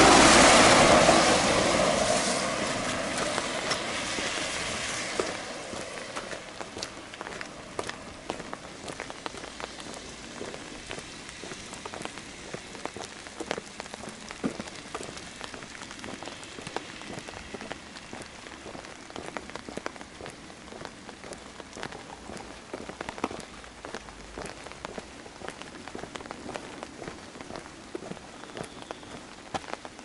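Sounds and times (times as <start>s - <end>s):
rain falling: 0.0s - 30.0s.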